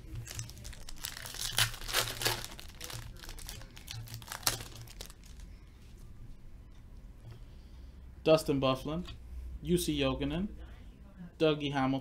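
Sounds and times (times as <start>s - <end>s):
foil wrapper crinkling: 0.0s - 5.5s
foil wrapper tearing: 0.2s - 5.5s.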